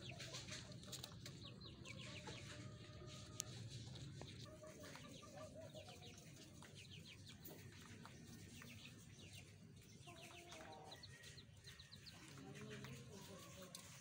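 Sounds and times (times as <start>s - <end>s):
hens clucking faintly: 0.0s - 14.0s.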